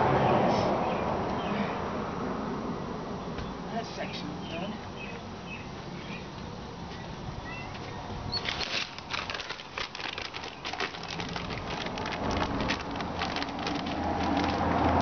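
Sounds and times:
plastic bag crinkling: 0:08.4 - 0:15.0.

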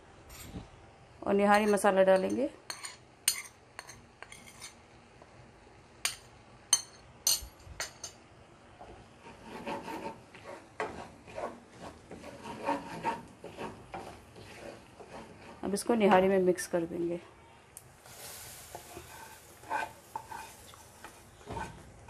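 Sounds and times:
frying sizzling in hot oil: 0:18.0 - 0:21.8.

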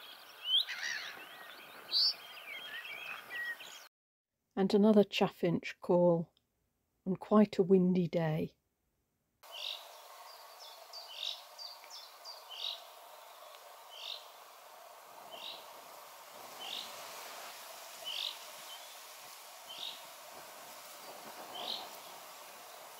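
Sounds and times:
wind rumble on microphone: 0:15.3 - 0:22.9.

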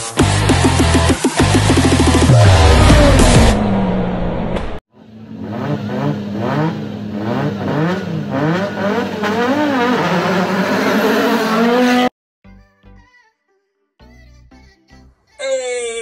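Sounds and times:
loud electronic music: 0:00.0 - 0:03.6
rally car engine revving: 0:00.0 - 0:12.1.

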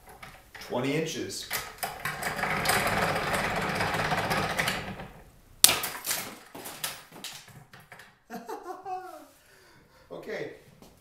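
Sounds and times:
wooden handle cracking: 0:05.6 - 0:08.2.

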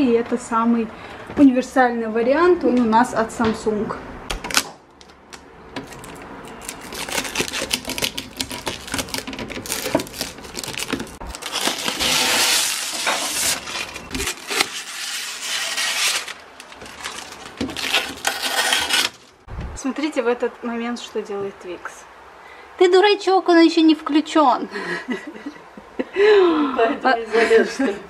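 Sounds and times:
plastic rustling: 0:04.5 - 0:19.5
plastic drawers clicking and clattering: 0:08.0 - 0:11.2.

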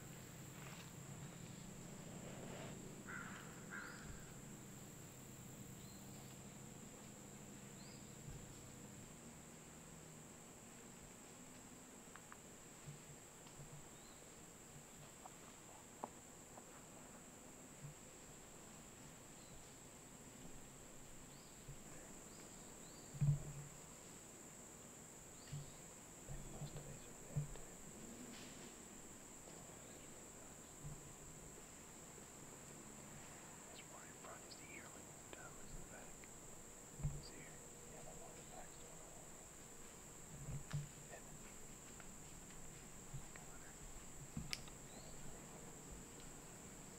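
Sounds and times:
crickets chirping: 0:00.0 - 0:46.9
soft low thumps: 0:37.0 - 0:37.5.

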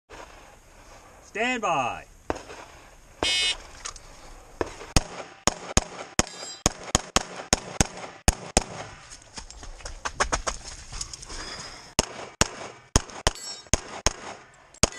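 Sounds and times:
pistol shots: 0:02.3 - 0:03.6, 0:04.6 - 0:08.8, 0:12.0 - 0:14.9
shot timer beep: 0:03.2 - 0:03.6.

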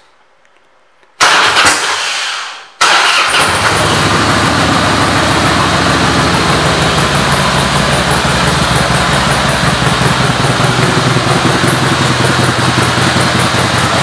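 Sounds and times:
motorcycle engine idling: 0:03.4 - 0:14.0.

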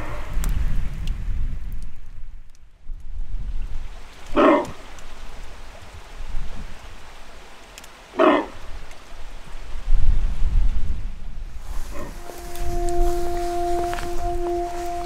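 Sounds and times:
deer alarm barks: 0:04.4 - 0:04.7, 0:08.2 - 0:08.5.

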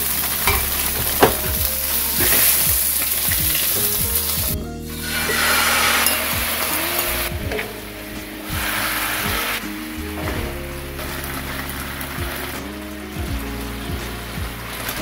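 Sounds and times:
food sizzling in a frying pan: 0:00.0 - 0:04.4
sauce sizzling and bubbling: 0:00.0 - 0:07.3.

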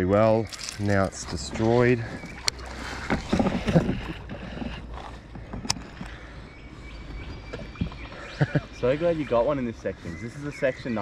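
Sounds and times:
water splashing around raft: 0:01.1 - 0:05.2.

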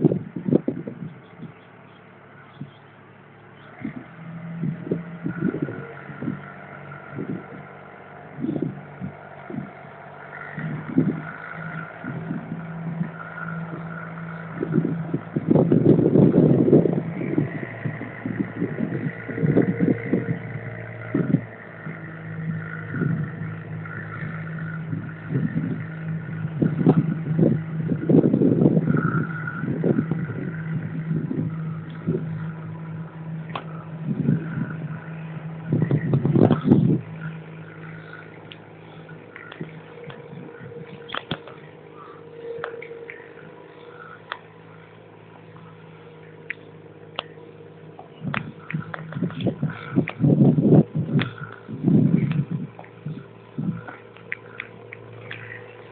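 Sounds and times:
boat engine humming: 0:00.0 - 0:55.9
low thumps: 0:07.2 - 0:45.7.

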